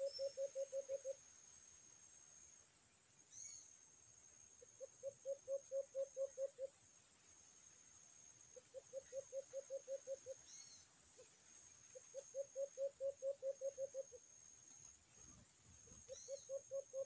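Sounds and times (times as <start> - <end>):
dove hooting: 0.0 - 1.2, 4.8 - 6.7, 8.7 - 10.6, 11.9 - 14.2, 15.9 - 17.0.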